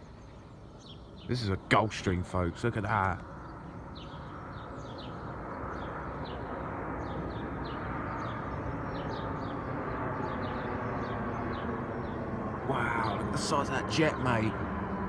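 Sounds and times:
birds chirping: 0.0 - 15.0
jet engine rush: 4.1 - 15.0.

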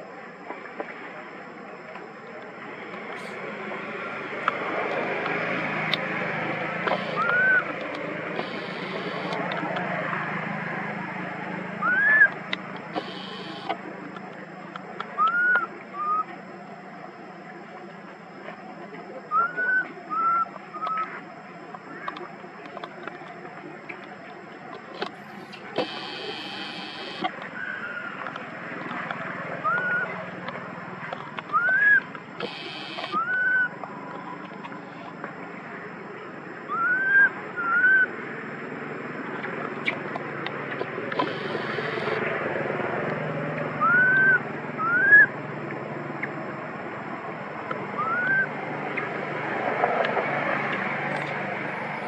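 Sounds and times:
steady outdoor hiss: 0.0 - 52.0
baby monkey cooing: 6.9 - 9.5, 25.4 - 28.2.

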